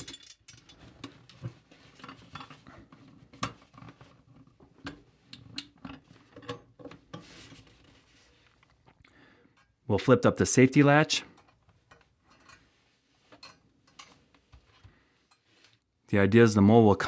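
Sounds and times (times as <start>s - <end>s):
metal trap clicking and clanking: 0.0s - 0.8s.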